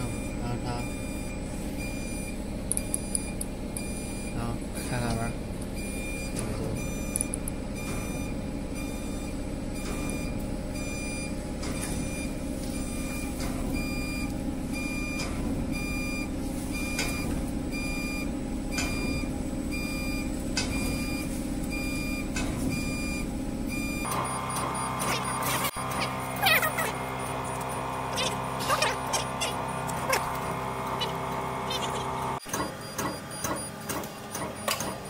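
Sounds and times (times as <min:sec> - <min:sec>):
lathe humming: 0:24.0 - 0:32.4.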